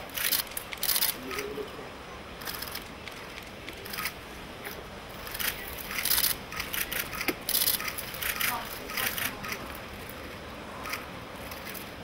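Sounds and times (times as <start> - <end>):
camera shutters clicking: 0.1 - 1.5, 2.4 - 4.2, 5.2 - 9.7.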